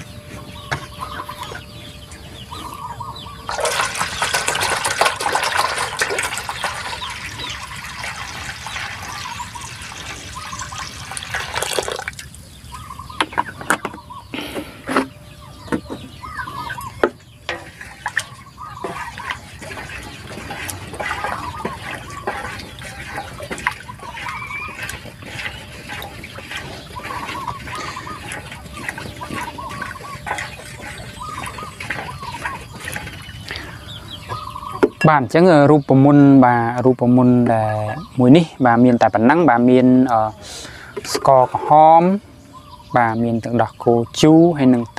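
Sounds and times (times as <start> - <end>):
chickens clucking: 0.0 - 44.9
stick stirring liquid in bowl: 3.5 - 12.2, 17.0 - 33.7
water pouring into metal bowl: 3.5 - 12.4, 17.5 - 33.2.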